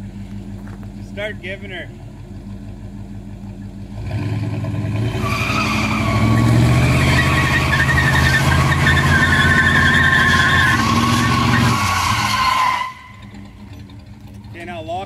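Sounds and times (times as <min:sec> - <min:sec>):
engines revving hard: 0:03.9 - 0:13.8
tyres squealing on pavement: 0:05.0 - 0:14.8.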